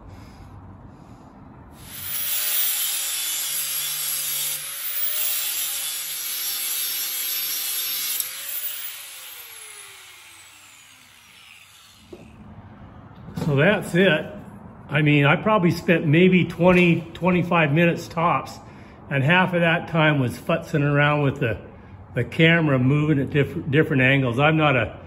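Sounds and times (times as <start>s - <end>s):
grinder winding down whine: 1.8s - 3.5s, 4.5s - 12.4s
angle grinder grinding steel: 1.8s - 12.3s.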